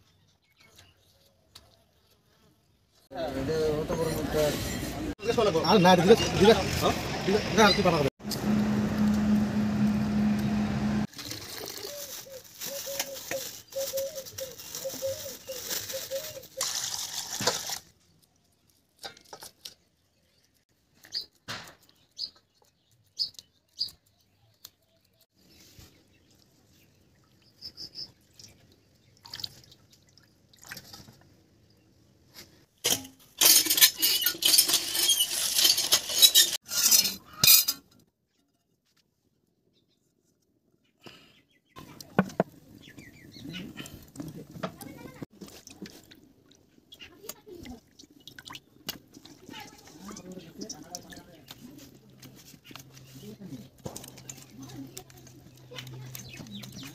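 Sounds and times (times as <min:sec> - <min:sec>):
road traffic noise: 0:03.2 - 0:11.1
fish scaled in steel bowl: 0:11.1 - 0:20.4, 0:32.4 - 0:38.6, 0:47.0 - 0:56.9
water splashes and drips: 0:16.5 - 0:19.7, 0:26.3 - 0:31.8, 0:45.3 - 0:51.6.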